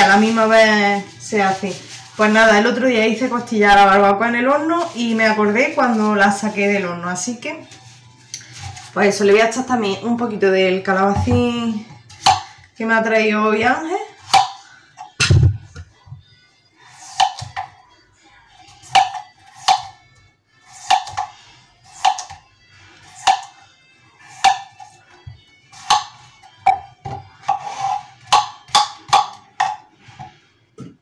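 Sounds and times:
knife chopping on cutting board: 0:14.3 - 0:14.6, 0:17.0 - 0:17.7, 0:18.8 - 0:19.9, 0:20.7 - 0:21.3, 0:21.9 - 0:22.4, 0:23.1 - 0:23.5, 0:24.3 - 0:24.8, 0:25.8 - 0:26.1, 0:27.4 - 0:30.3.

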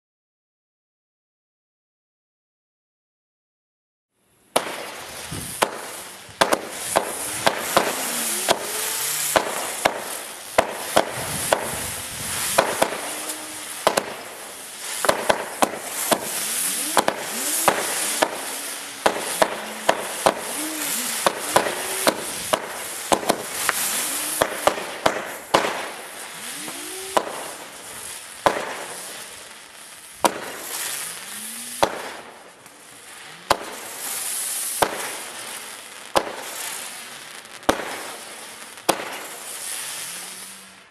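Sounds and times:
hiss of burning stars: 0:04.2 - 0:40.9
firework pops: 0:04.5 - 0:29.4, 0:30.2 - 0:31.0, 0:31.8 - 0:32.8, 0:33.5 - 0:34.1, 0:34.8 - 0:36.8, 0:37.6 - 0:39.8.

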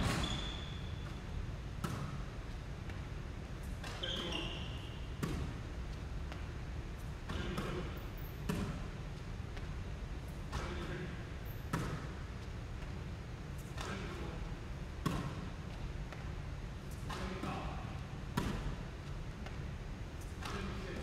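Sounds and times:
basketballs bouncing on wood floor: 0:07.2 - 0:08.9, 0:11.7 - 0:12.0.

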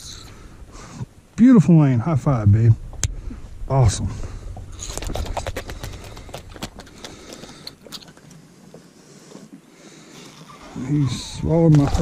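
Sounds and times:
clicks and knocks of fishing tackle: 0:04.8 - 0:09.5.

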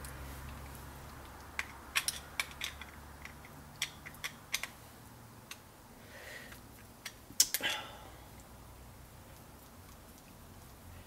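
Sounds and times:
small metal lock parts clicking: 0:01.5 - 0:04.8.

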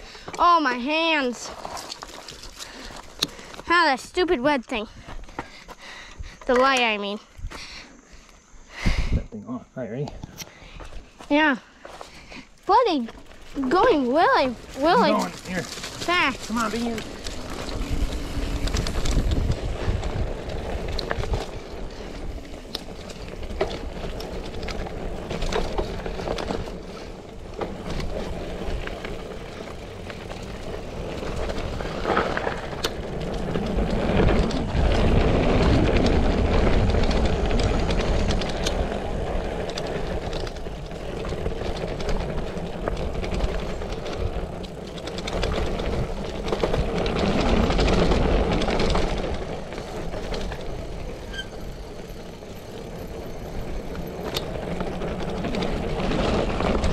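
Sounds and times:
bike tyre noise: 0:00.0 - 0:09.2, 0:10.1 - 0:56.9
bike rattles and knocks: 0:00.2 - 0:04.2, 0:10.8 - 0:56.9
wind over microphone: 0:14.4 - 0:52.4.

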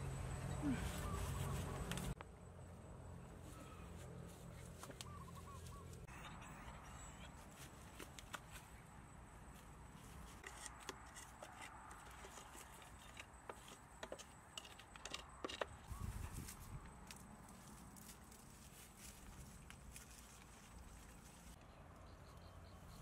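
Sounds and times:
twigs and straw clicking: 0:01.1 - 0:02.3.

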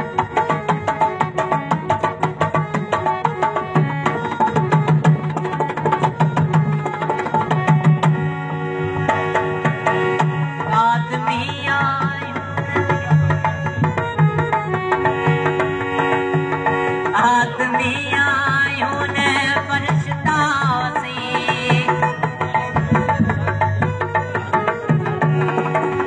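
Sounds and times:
barrel drum beating fast rhythm: 0:21.6 - 0:26.0.

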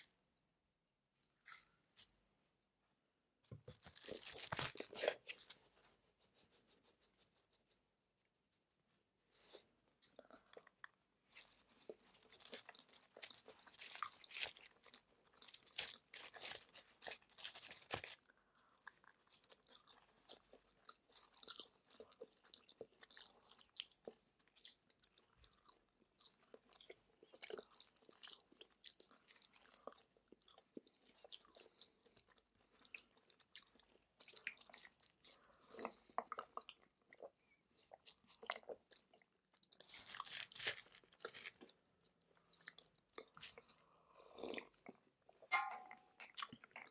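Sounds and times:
crunchy bites: 0:39.8 - 0:41.7.

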